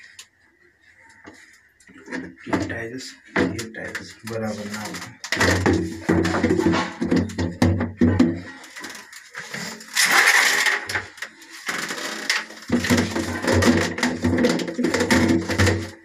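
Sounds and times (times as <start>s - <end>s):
plastic tank knocks and clicks: 2.2s - 8.6s, 12.6s - 16.0s.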